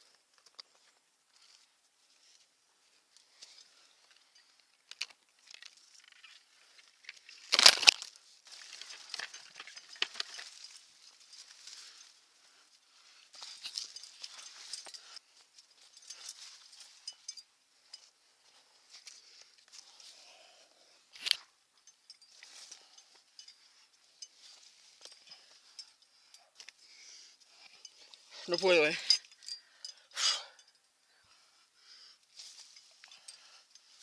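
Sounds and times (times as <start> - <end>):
climbing gear clinking and jingling: 0.0 - 34.0.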